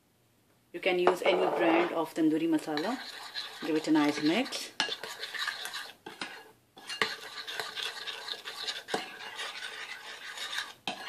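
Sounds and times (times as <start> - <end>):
spoon stirring paste in glass bowl: 1.1 - 11.0.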